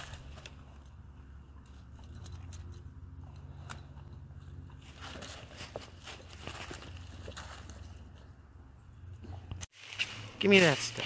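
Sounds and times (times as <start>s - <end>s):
leaves rustling: 0.0s - 0.8s, 4.8s - 8.2s, 9.7s - 11.0s
dog collar tags jingling: 0.0s - 8.4s.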